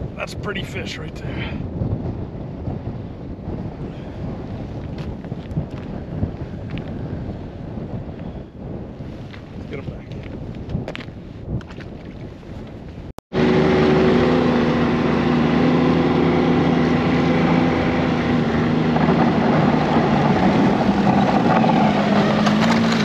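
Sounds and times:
wind noise: 0:00.0 - 0:23.0
snowmobile engine running: 0:13.3 - 0:23.0.

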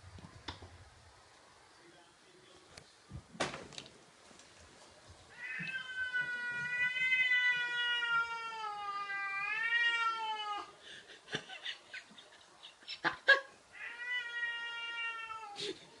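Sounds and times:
cat meowing: 0:05.3 - 0:10.7, 0:13.7 - 0:15.6.

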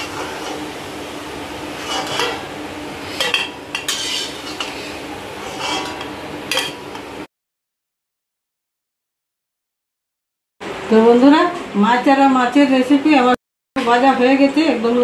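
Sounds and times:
fritters sizzling in hot oil: 0:00.0 - 0:07.2
spatula scraping and clinking: 0:01.7 - 0:02.5, 0:03.1 - 0:07.0.

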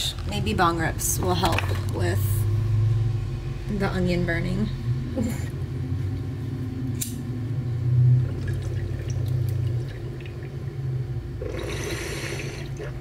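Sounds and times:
water gurgling in a bong: 0:08.0 - 0:13.0.

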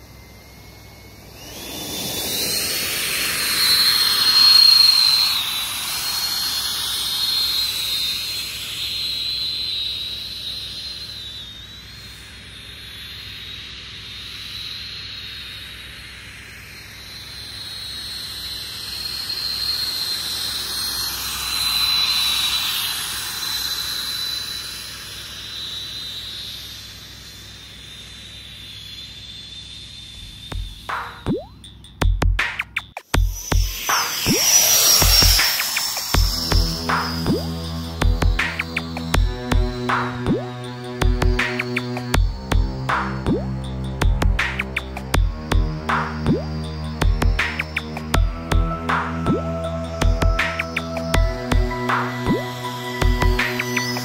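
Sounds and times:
jet-like rush: 0:00.0 - 0:12.8, 0:33.0 - 0:45.2
electric ducted fans whining: 0:00.0 - 0:32.0, 0:33.1 - 0:54.0.

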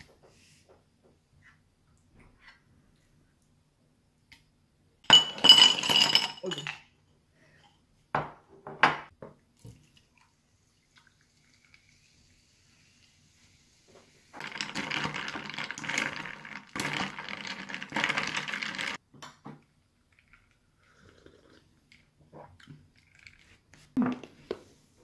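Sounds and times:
ice clinking in glass: 0:05.1 - 0:06.8
sparkling water pouring and fizzing: 0:09.6 - 0:19.0.

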